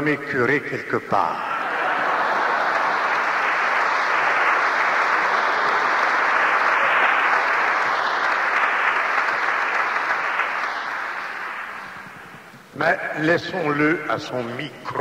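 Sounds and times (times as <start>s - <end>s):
congregation applauding: 1.4s - 12.8s.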